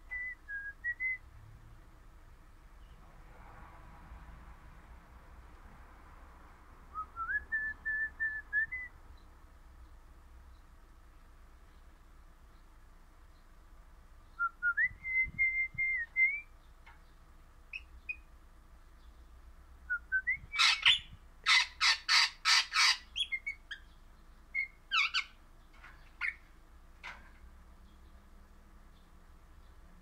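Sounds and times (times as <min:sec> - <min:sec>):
parrot whistling calls: 0:20.2 - 0:23.6.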